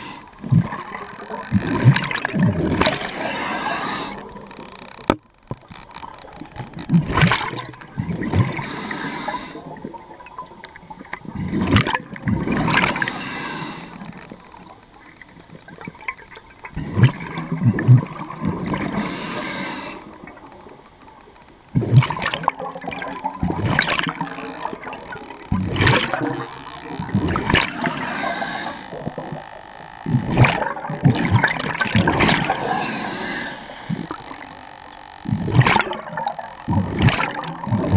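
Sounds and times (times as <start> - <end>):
regulator breathing underwater: 0.0 - 0.4, 2.9 - 4.4, 8.5 - 9.8, 12.6 - 14.1, 18.8 - 20.2, 27.6 - 29.1, 32.2 - 34.6
gurgling exhaled bubbles: 0.0 - 4.8, 6.6 - 13.7, 15.7 - 20.4, 21.7 - 37.9.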